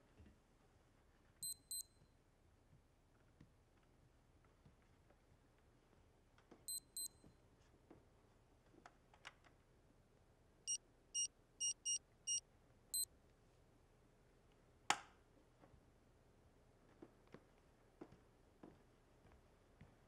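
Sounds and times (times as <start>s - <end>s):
alarm keypad beeping: 1.4s - 1.9s, 10.7s - 12.4s.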